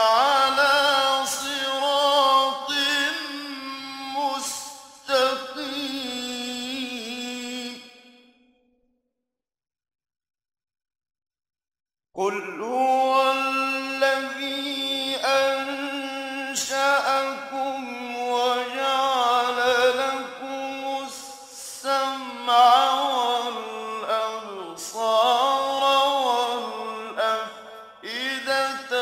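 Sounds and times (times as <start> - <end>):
man chanting melodically: 0.0 - 8.2, 12.2 - 29.0.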